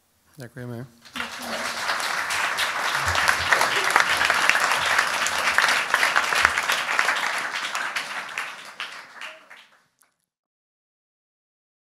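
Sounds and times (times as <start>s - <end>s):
audience applauding: 1.0s - 9.8s.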